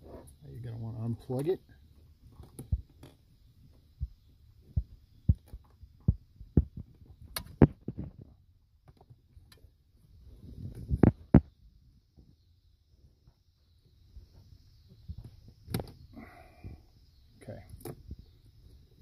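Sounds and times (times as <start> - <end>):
dull thumps and knocks: 4.0 - 9.2.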